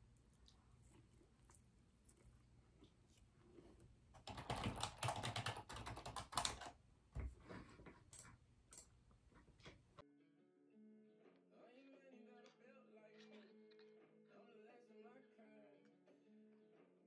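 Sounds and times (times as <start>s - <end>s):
typing on computer keyboard: 4.2s - 6.8s.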